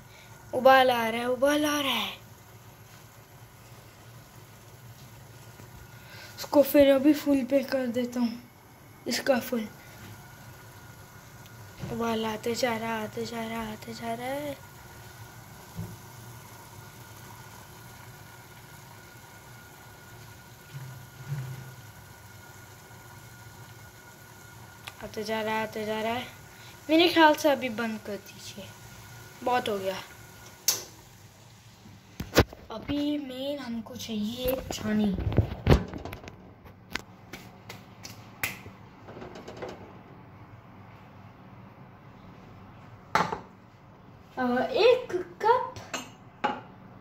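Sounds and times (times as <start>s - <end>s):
gas burner rushing hiss: 0.0s - 32.5s
tea bubbling at a rolling boil: 0.0s - 36.5s.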